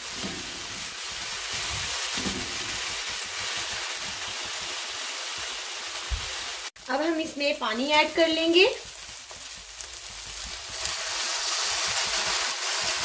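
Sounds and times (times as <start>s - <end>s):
food sizzling in hot oil: 0.0s - 13.0s.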